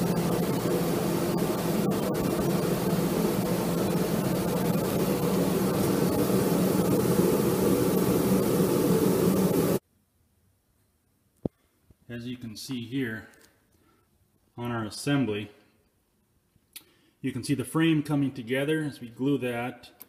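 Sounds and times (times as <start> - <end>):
fans whooshing drone: 0.0 - 9.8
low hum: 0.0 - 9.8.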